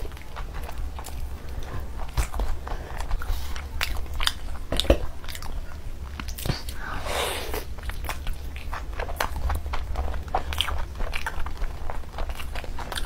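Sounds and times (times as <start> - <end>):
steady low hum: 0.0 - 13.0
person biting and chewing: 7.5 - 13.0.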